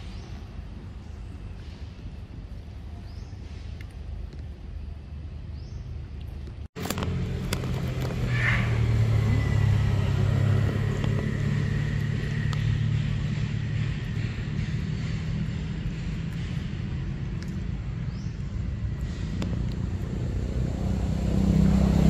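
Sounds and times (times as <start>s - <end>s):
low motor-like rumble: 0.0s - 22.0s.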